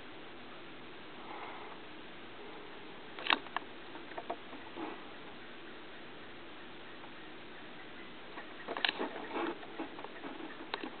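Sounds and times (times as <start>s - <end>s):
faint hiss: 0.0s - 11.0s
sharp clicks and knocks: 8.6s - 11.0s.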